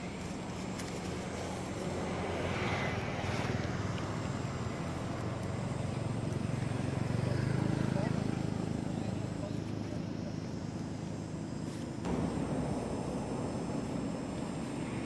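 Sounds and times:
engine rumble: 0.0s - 15.0s.

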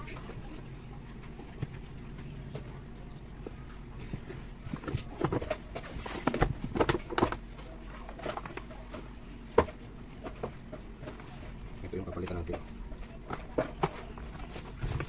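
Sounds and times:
plastic cover clacks and scrapes: 4.0s - 15.0s.

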